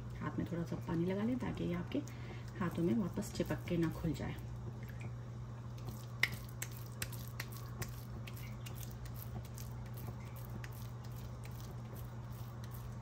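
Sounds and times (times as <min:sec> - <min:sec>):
hands squishing meat mixture: 0:05.8 - 0:13.0.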